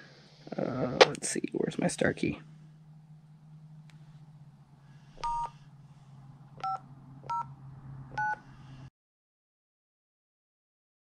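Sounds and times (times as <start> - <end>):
low steady hum: 0.0 - 8.9
touch-tone keypad beeps: 5.2 - 5.5, 6.6 - 7.5, 8.2 - 8.4.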